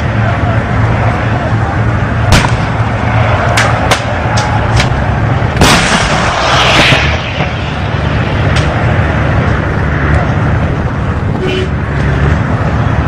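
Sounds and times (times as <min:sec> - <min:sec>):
low engine rumble: 0:00.0 - 0:13.0
gunshots with rolling echo: 0:05.6 - 0:07.9.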